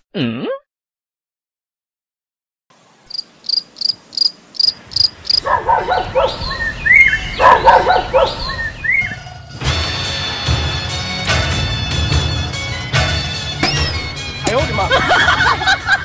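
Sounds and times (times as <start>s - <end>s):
cricket chirping: 3.0s - 6.5s
rising sliding whistles: 6.3s - 9.3s.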